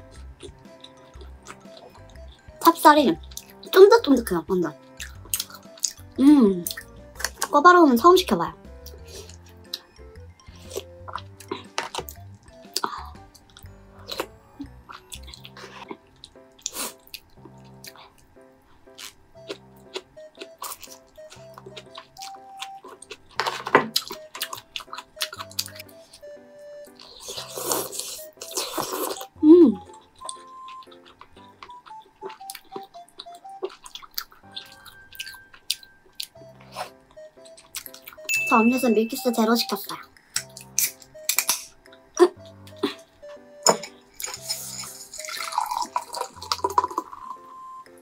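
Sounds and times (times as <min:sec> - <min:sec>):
person chewing food: 0:00.0 - 0:02.5, 0:03.2 - 0:03.7, 0:04.9 - 0:07.5, 0:08.8 - 0:38.3, 0:40.1 - 0:48.0
soft background music: 0:00.0 - 0:48.0
wet mouth noises: 0:26.9 - 0:38.3, 0:44.1 - 0:47.4.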